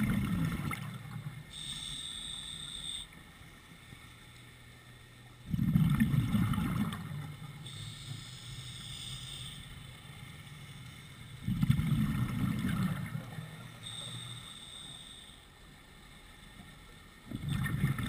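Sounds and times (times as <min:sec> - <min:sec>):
exhaled bubbles rumbling underwater: 0:00.0 - 0:01.6, 0:05.3 - 0:07.8, 0:11.3 - 0:13.8, 0:16.5 - 0:18.0
regulator inhalation hiss: 0:01.5 - 0:03.1, 0:07.6 - 0:09.9, 0:13.8 - 0:15.5.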